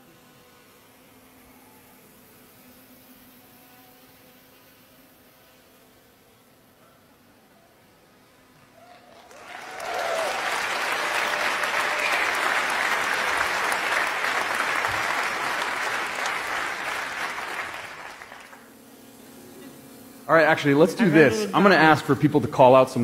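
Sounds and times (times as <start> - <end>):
theatre audience applauding: 8.8 - 18.6.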